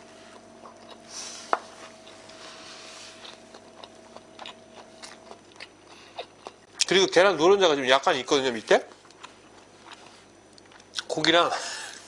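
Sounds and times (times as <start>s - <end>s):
faint hum: 0.0s - 12.0s
chewing: 1.9s - 6.9s, 8.9s - 11.2s.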